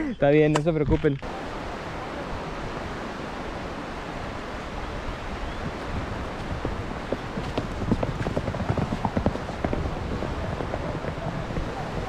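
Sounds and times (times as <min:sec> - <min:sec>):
steady rushing noise: 0:05.8 - 0:12.0.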